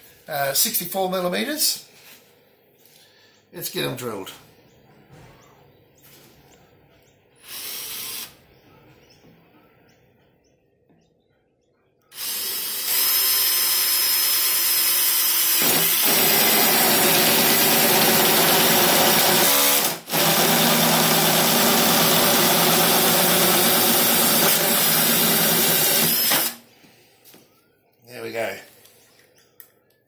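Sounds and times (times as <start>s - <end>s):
power drill cutting plastic pipe: 7.4s - 8.3s, 12.1s - 26.6s.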